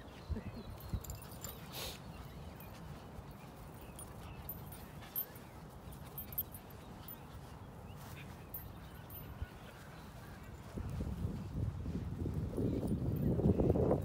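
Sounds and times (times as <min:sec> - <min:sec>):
dogs whining and yipping: 0:00.8 - 0:09.3.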